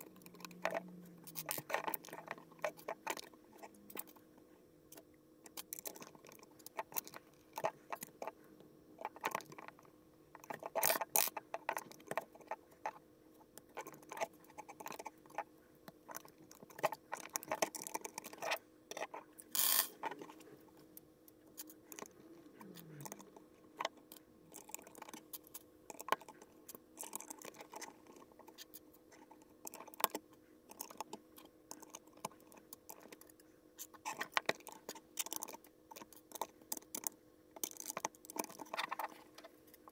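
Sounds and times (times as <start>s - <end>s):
faint steady hum: 0.0s - 39.9s
plastic bricks clicking: 16.8s - 20.2s.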